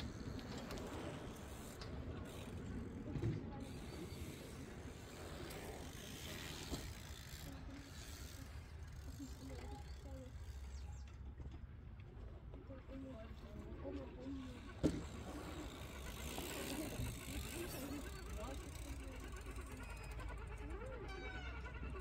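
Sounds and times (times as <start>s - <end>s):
toy car electric motor: 3.6s - 10.6s, 14.6s - 22.0s.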